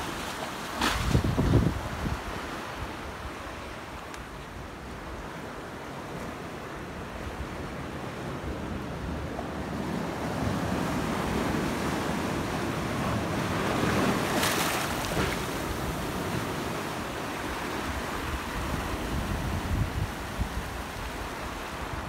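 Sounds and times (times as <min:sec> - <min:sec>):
small waves washing over rocks: 0:11.0 - 0:19.0.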